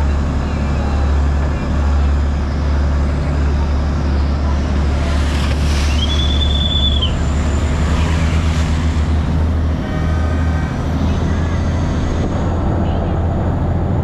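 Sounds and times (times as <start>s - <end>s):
boat engine droning: 0.0s - 14.0s
high whistle note: 5.8s - 7.3s.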